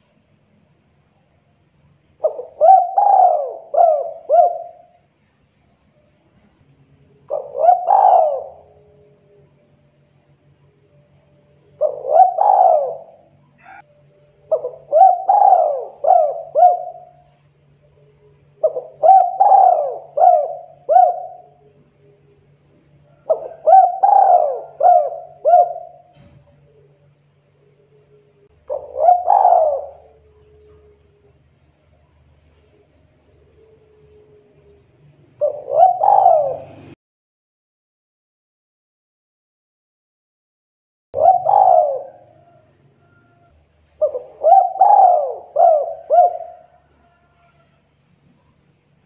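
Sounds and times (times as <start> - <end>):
dove cooing: 2.2 - 5.0, 7.2 - 9.2, 11.7 - 17.3, 17.9 - 27.1, 27.7 - 31.4, 33.5 - 37.0, 41.2 - 47.8.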